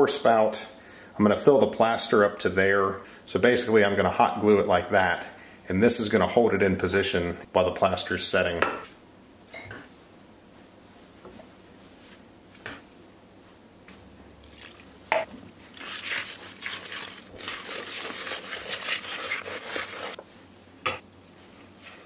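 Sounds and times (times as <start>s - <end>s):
spoon stirring plaster in tub: 15.5s - 20.3s.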